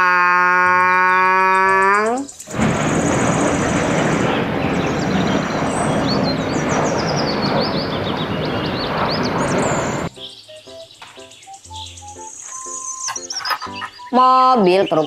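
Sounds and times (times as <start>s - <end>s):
jet engines roaring: 2.4s - 10.1s.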